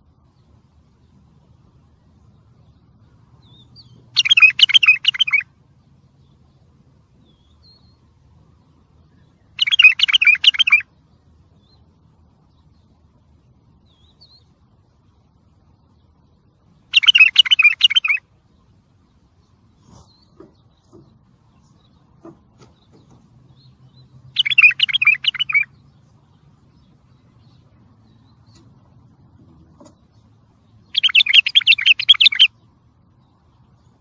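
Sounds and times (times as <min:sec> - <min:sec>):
bird warbling: 0:03.5 - 0:05.5, 0:09.5 - 0:10.9, 0:16.9 - 0:18.3, 0:24.3 - 0:25.8, 0:30.8 - 0:32.6.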